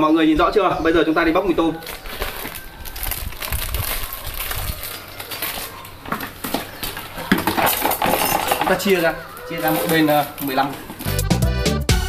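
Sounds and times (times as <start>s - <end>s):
plastic washbasins rustling and knocking: 1.8s - 11.1s.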